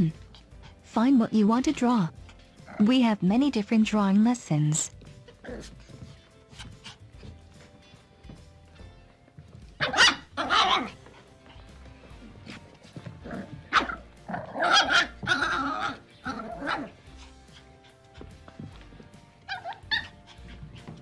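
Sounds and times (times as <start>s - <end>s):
soft background music: 0.0s - 21.0s
puppies yipping and barking: 9.8s - 11.0s, 13.4s - 18.2s, 19.3s - 21.0s.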